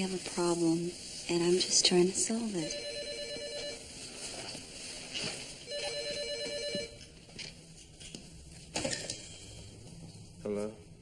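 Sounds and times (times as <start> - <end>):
telephone ringing: 2.6 - 3.9, 5.7 - 7.0.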